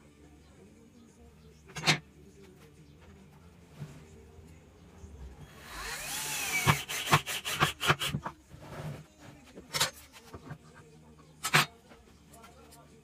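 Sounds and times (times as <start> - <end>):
cordless drill whirring into wood: 5.7 - 7.1.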